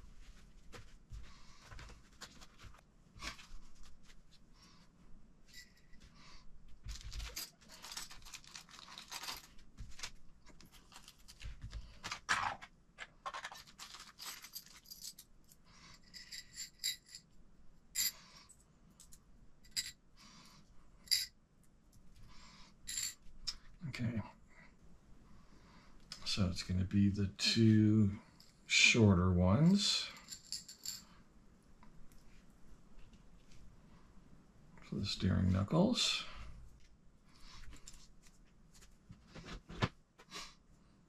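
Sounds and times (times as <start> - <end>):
rustling: 6.7 - 12.4.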